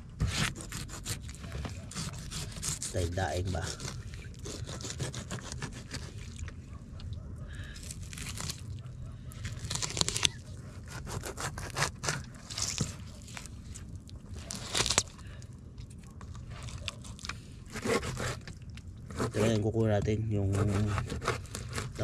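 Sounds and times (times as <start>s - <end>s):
knife scraping fish scales: 0.2s - 6.4s, 9.5s - 13.5s, 16.4s - 18.5s, 19.1s - 19.6s, 20.5s - 22.0s.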